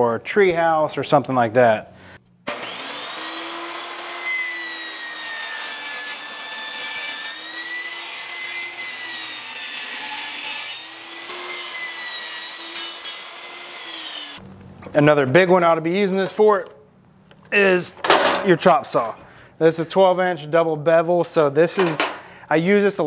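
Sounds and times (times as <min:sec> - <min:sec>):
table saw motor whine: 0:02.5 - 0:14.4.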